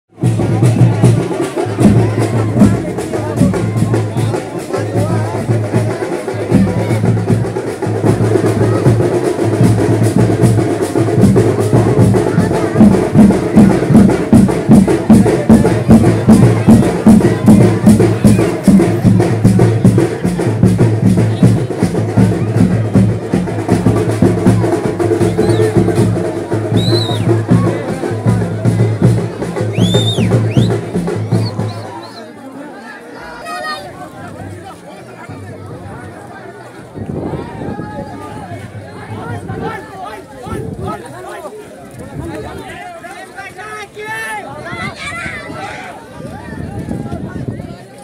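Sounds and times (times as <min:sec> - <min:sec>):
loud drum-driven music: 0:00.1 - 0:32.1
crowd voices: 0:00.1 - 0:48.0.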